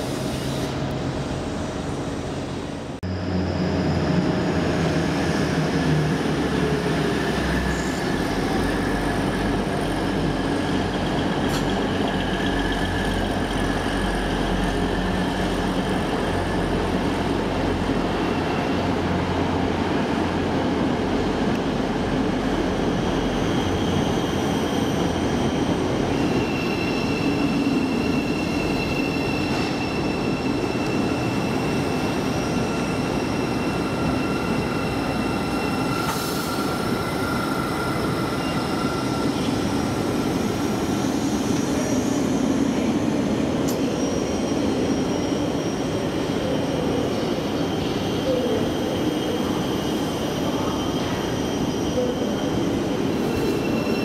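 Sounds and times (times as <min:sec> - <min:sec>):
passenger train running: 0:00.0 - 0:54.0
high wheel squeals: 0:22.8 - 0:42.8, 0:43.8 - 0:54.0.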